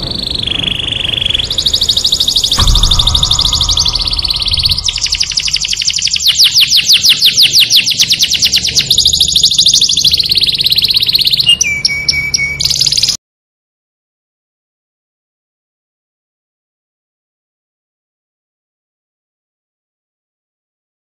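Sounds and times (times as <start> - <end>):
canary singing trills: 0.0 - 13.2.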